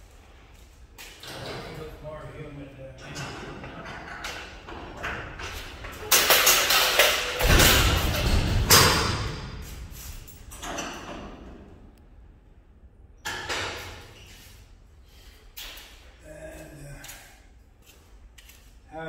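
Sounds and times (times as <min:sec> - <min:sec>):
metal sliding door rolling shut: 0:01.2 - 0:01.9, 0:03.0 - 0:11.8.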